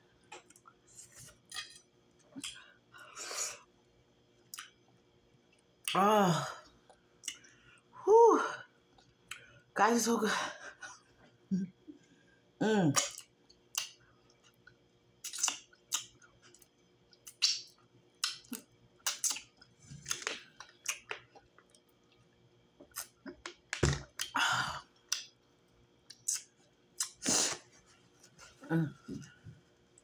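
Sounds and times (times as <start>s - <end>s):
wet chewing and lip smacks: 4.5s - 4.9s, 13.0s - 23.6s, 26.1s - 27.2s.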